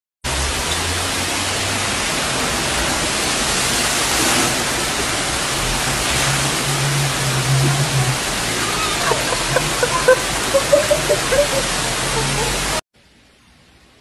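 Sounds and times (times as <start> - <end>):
heavy rain downpour: 0.2 - 14.0
floodwater pouring: 0.5 - 12.8.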